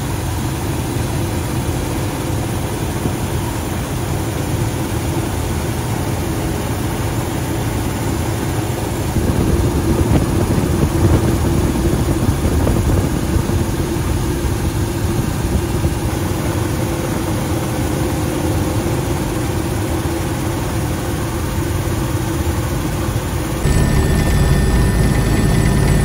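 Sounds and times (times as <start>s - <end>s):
helicopter engines and rotor: 0.0s - 26.0s
steady hum: 6.4s - 18.5s, 22.6s - 26.0s.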